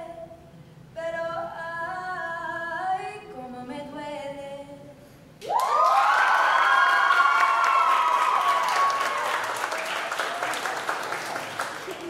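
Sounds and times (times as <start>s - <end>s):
woman singing unaccompanied: 1.0s - 5.0s.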